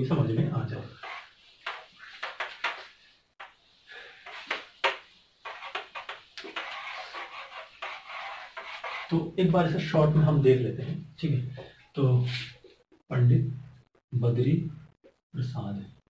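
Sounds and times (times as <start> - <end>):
eraser scrubbing a whiteboard: 0.9 - 9.2.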